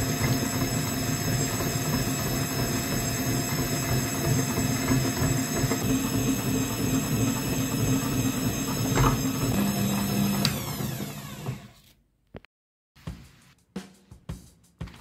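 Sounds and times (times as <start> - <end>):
electric meat grinder humming: 0.0 - 11.8.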